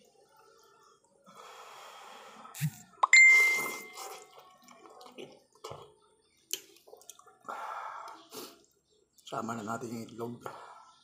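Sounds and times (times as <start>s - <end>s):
person slurping noodles: 3.4s - 4.4s.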